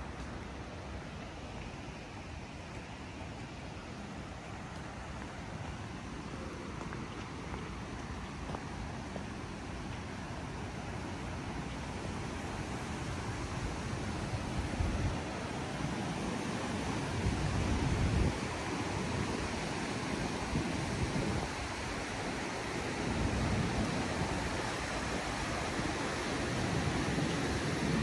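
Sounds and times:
steady rushing outdoor noise: 0.0s - 28.0s
wind buffeting microphone: 12.1s - 28.0s.

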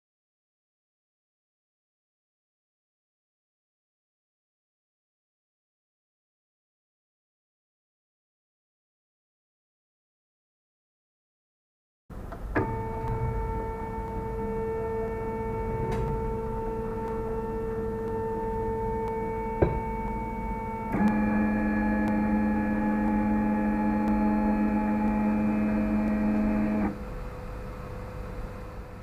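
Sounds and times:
printer click: 12.2s - 14.6s, 20.8s - 27.0s
stepper motors whining: 12.2s - 27.2s.

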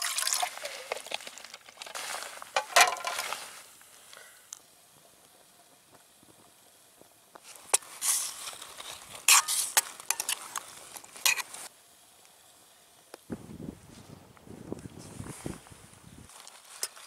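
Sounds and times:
metal spoon stirring in steel cup: 8.0s - 10.6s, 11.2s - 11.6s.

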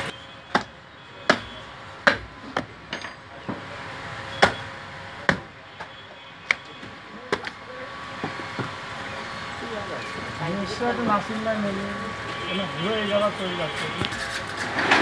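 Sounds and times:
cleaver chopping on wooden block: 0.5s - 0.7s.

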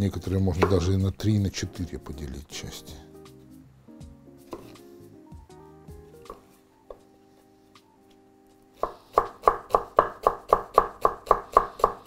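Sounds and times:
knife chopping on wooden board: 0.6s - 0.8s, 4.5s - 4.8s, 8.8s - 12.0s.

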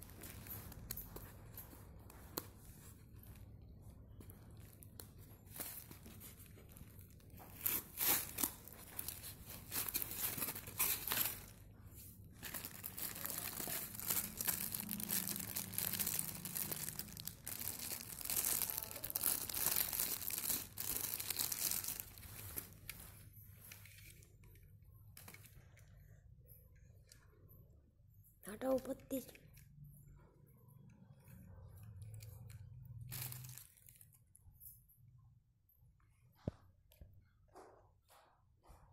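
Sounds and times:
plastic wrapping crinkling: 0.0s - 24.3s, 32.1s - 34.5s.

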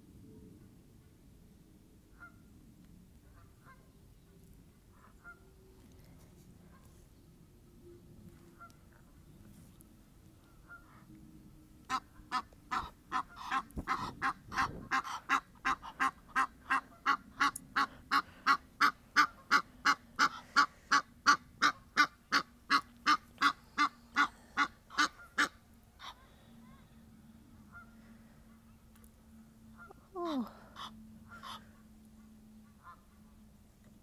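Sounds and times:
geese honking: 4.9s - 5.6s, 10.4s - 11.1s, 11.9s - 28.8s, 29.6s - 33.4s.

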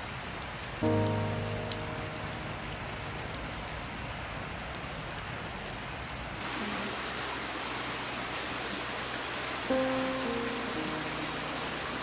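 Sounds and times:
river water rushing: 6.4s - 12.0s.

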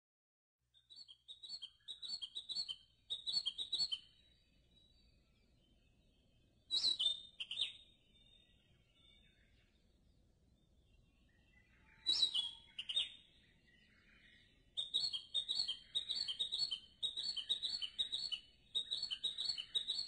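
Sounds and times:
short high bird chirps: 0.8s - 5.1s, 6.7s - 9.2s, 11.9s - 13.4s, 14.8s - 20.0s.

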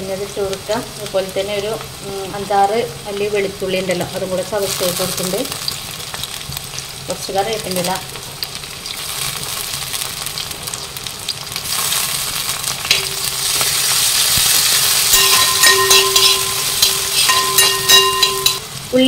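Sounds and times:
onion and garlic sizzling in oil: 0.0s - 19.0s
clinks and scrapes against pot: 15.0s - 18.6s.

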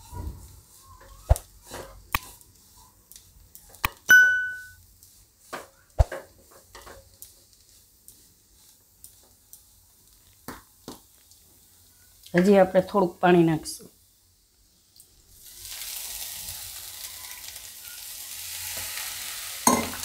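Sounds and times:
sharp metallic clink: 4.1s - 4.8s.

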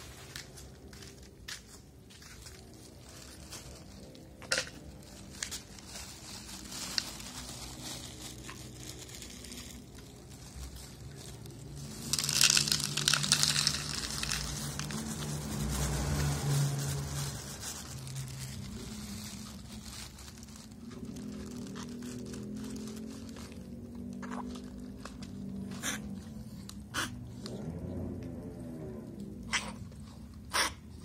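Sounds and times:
plastic bag crinkling: 0.0s - 26.9s.

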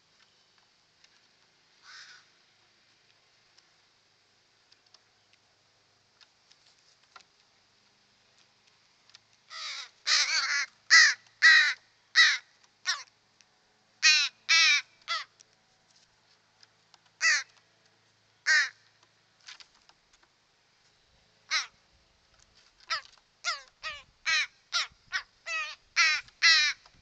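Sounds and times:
crows cawing: 1.8s - 2.3s, 9.5s - 13.1s, 14.0s - 15.4s, 17.2s - 17.6s, 18.4s - 18.8s, 21.5s - 21.8s, 22.8s - 26.8s.

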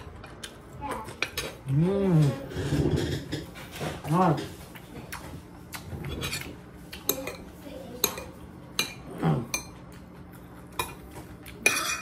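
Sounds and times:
cutlery clinking on ceramic plate: 10.7s - 12.0s.

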